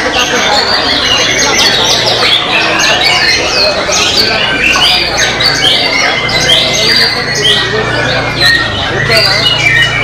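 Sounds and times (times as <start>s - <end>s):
songbird whistling song: 0.7s - 10.0s.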